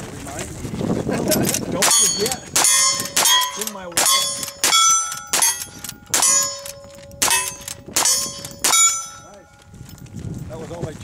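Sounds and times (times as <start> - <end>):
rifle shots: 1.5 - 9.3
steel target ringing: 1.8 - 9.5.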